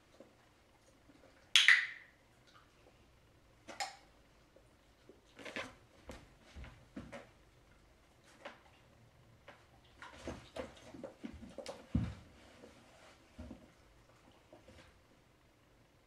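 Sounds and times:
rustling on floor mat: 0:05.3 - 0:07.4, 0:09.4 - 0:13.9
soft footsteps in socks: 0:05.9 - 0:07.4.

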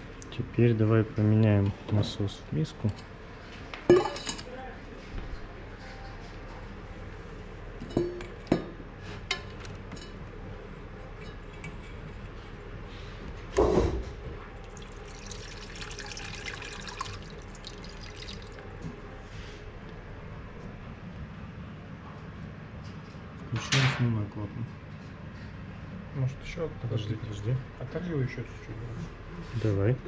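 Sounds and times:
water running into metal bowl: 0:14.6 - 0:18.7.

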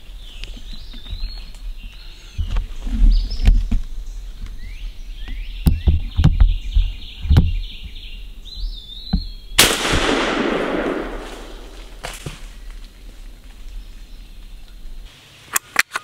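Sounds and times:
gunshot echoing: 0:09.6 - 0:12.2
soft footstep thumps: 0:11.2 - 0:13.8.

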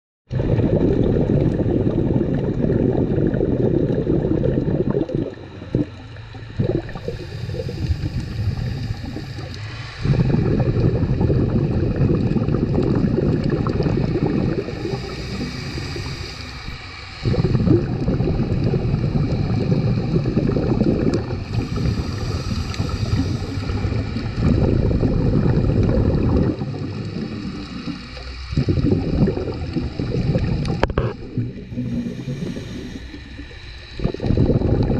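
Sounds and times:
exhaled bubbles rushing: 0:00.3 - 0:34.9
regulator inhale hiss: 0:06.8 - 0:11.4, 0:14.0 - 0:17.7, 0:20.8 - 0:24.5, 0:26.6 - 0:28.8, 0:29.9 - 0:34.3.

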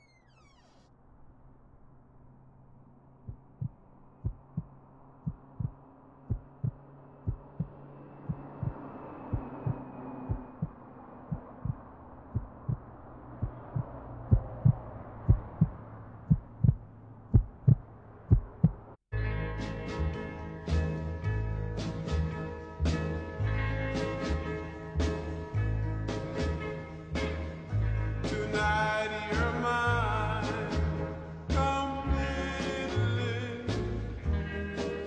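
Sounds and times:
muffled wash of noise: 0:01.0 - 0:19.0
heartbeat double thump: 0:03.3 - 0:19.0.

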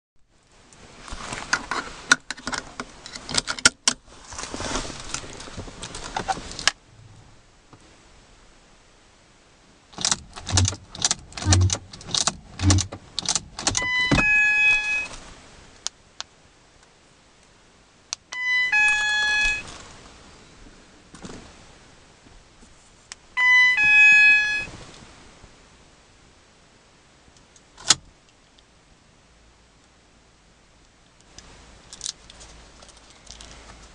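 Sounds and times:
sharp click: 0:10.0 - 0:13.8
dashboard two-note chime: 0:18.4 - 0:19.6.

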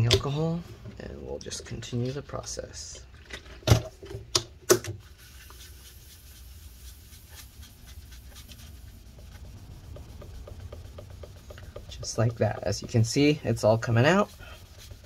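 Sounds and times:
paper towel rubbing: 0:05.0 - 0:15.0.

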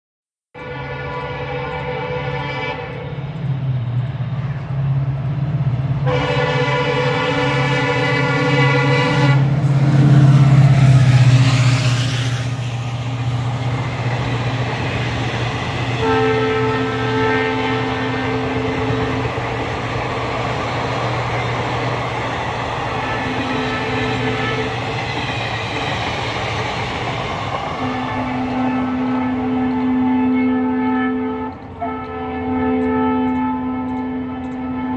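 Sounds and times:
train horn blasts: 0:00.5 - 0:03.4, 0:06.0 - 0:09.7, 0:15.8 - 0:19.4, 0:22.9 - 0:24.8, 0:27.8 - 0:34.9
train passing: 0:00.6 - 0:34.9
drawn-out tone: 0:00.8 - 0:34.9
train wheels rumbling and clattering: 0:00.8 - 0:34.9.

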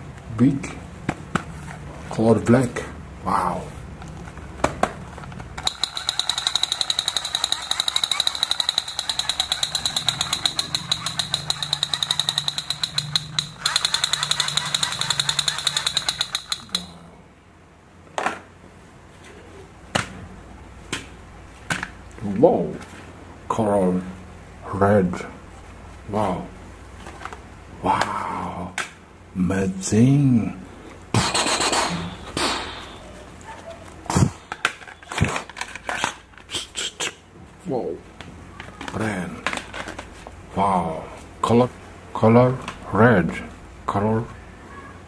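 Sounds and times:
plastic toy guns knocking: 0:05.6 - 0:16.9
toy pistol rapid-fire rattle: 0:05.6 - 0:16.9.

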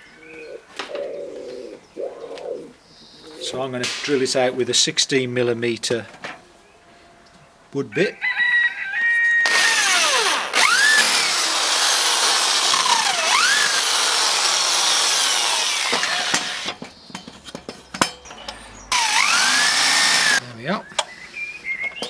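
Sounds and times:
electric drill boring into wood: 0:09.4 - 0:16.7, 0:18.9 - 0:20.4.

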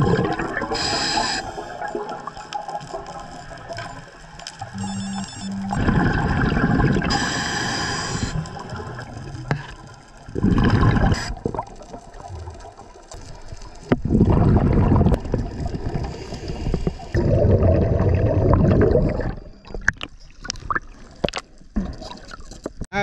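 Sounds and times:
diver exhaling bubbles underwater: 0:00.0 - 0:02.1, 0:05.6 - 0:12.6, 0:13.9 - 0:21.0.

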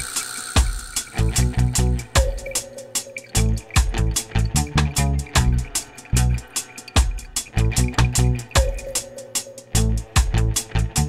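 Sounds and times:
drum beat: 0:00.0 - 0:10.8
plucked bass notes: 0:01.2 - 0:02.4, 0:03.3 - 0:08.8, 0:09.8 - 0:11.0.

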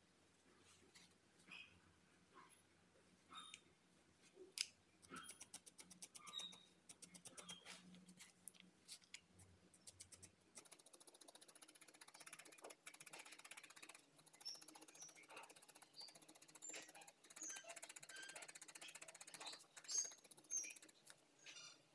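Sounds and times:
felting needle ticking: 0:05.0 - 0:07.7, 0:09.7 - 0:21.6.

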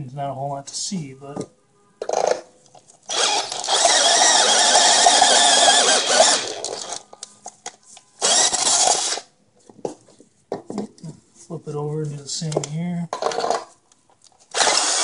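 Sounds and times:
electric drill boring through metal: 0:03.1 - 0:07.0, 0:08.2 - 0:09.3, 0:14.5 - 0:15.0.

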